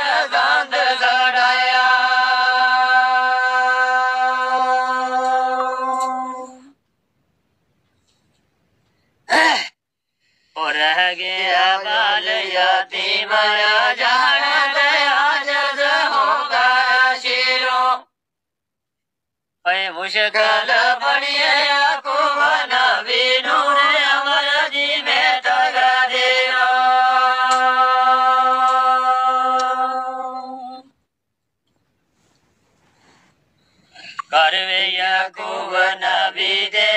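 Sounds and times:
man singing unaccompanied: 10.6s - 18.1s, 19.6s - 30.9s, 34.2s - 36.9s.

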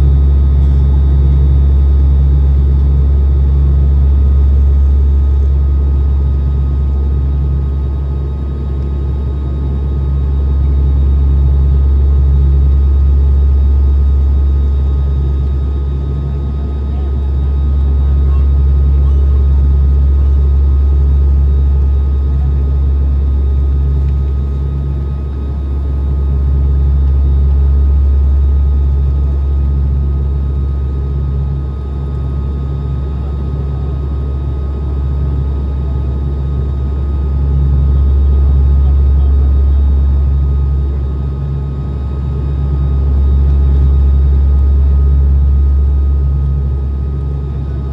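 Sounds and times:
airliner engine drone: 0.0s - 47.9s.

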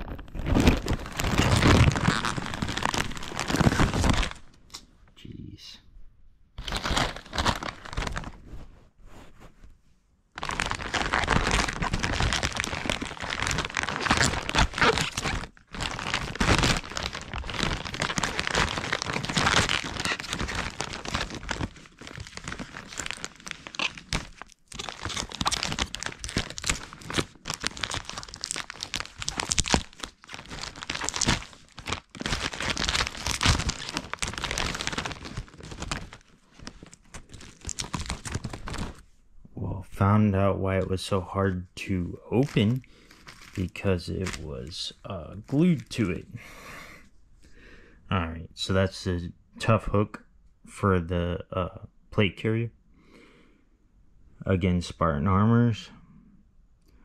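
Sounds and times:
packaging crinkling and tearing: 0.0s - 4.6s, 6.6s - 8.5s, 10.4s - 39.0s, 42.2s - 46.4s.

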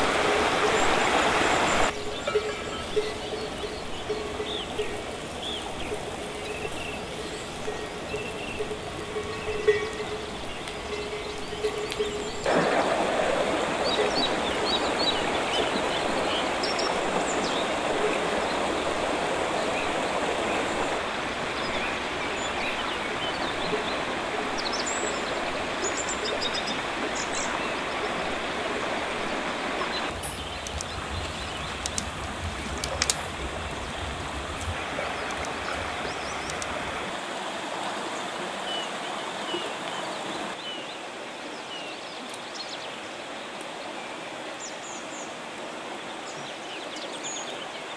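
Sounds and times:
river babbling over stones: 0.0s - 47.9s.

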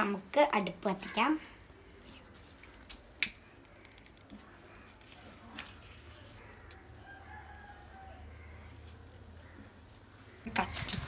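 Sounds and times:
distant rooster crowing: 6.8s - 9.6s.

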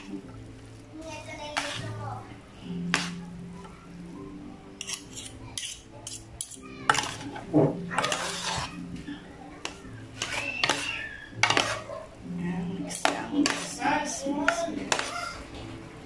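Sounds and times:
forks clinking against bowl: 4.8s - 8.7s, 9.6s - 12.0s.

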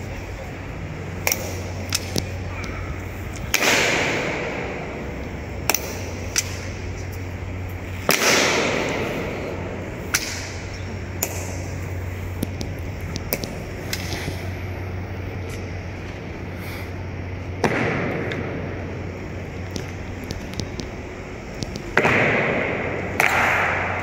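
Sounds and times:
loud echoing strikes: 1.2s - 6.9s, 8.0s - 11.9s, 17.5s - 19.5s, 21.9s - 24.0s
marching steps clicking: 19.5s - 22.0s.

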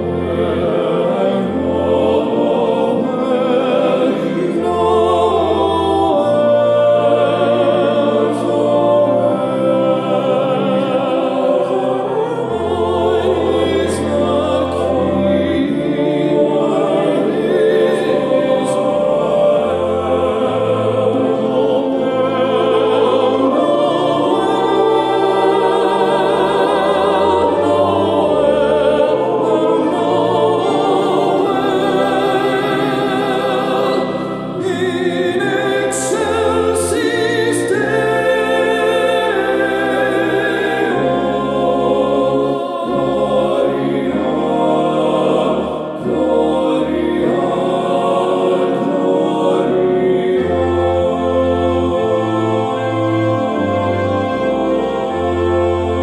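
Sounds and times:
choir singing hymns: 0.0s - 56.0s.

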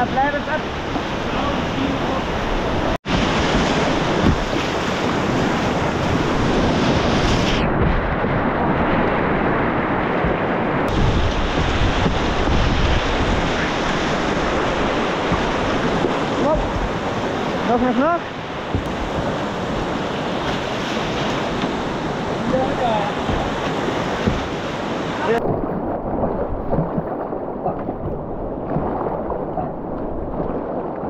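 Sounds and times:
muffled water over camera: 0.9s - 31.0s
whitewater rapids rushing: 9.3s - 25.7s.

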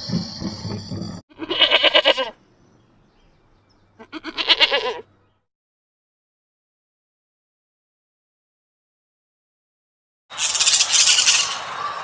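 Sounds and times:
wavering bleats: 1.3s - 2.4s, 4.0s - 5.1s.

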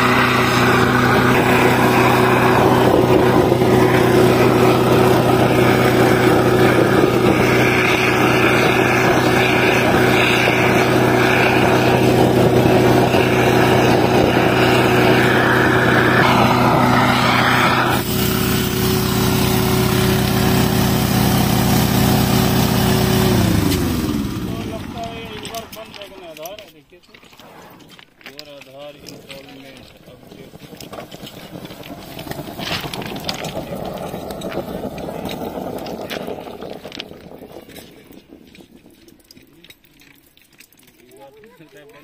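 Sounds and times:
torch flame hissing: 0.0s - 20.7s
small petrol engine running: 0.0s - 26.6s, 28.5s - 42.0s.

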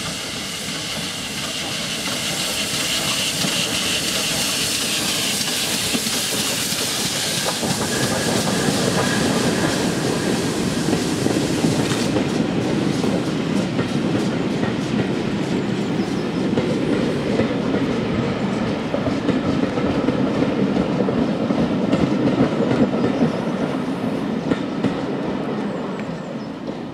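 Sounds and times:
steam hissing: 0.0s - 21.4s
train coaches rumbling past: 0.0s - 26.9s.

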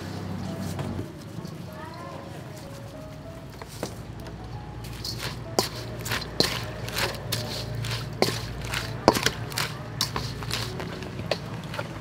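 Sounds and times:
wooden spoon scraping metal bowl: 4.8s - 12.0s.

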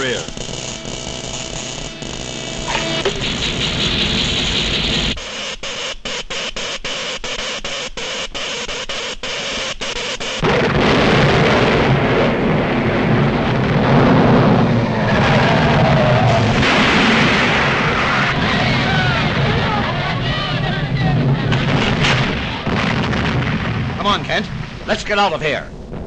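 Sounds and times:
cartoon explosion: 0.0s - 5.2s, 8.7s - 25.0s
rumble of crumbling buildings: 0.0s - 5.2s, 10.4s - 26.0s
cartoon electric crackle: 0.0s - 25.3s.

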